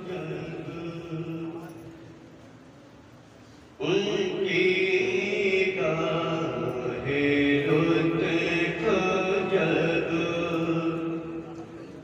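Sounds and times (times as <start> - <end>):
man chanting: 0.0 - 1.9, 3.8 - 12.0.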